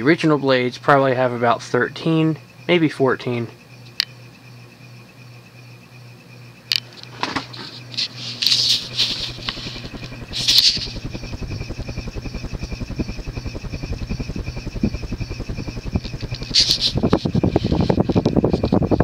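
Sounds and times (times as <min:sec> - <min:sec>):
ceiling fan motor humming: 0:00.0 - 0:19.0
rapid even pulsing: 0:07.8 - 0:19.0
sharp clicks: 0:08.4 - 0:17.3.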